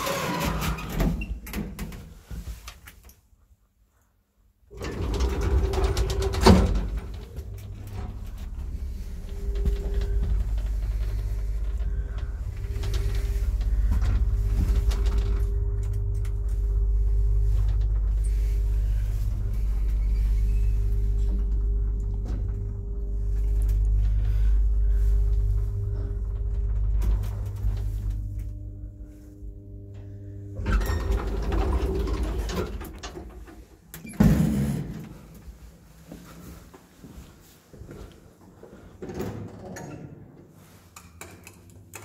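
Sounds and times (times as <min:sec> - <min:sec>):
lift low rumble: 0:04.7 - 0:33.8
thin hum: 0:06.6 - 0:32.3.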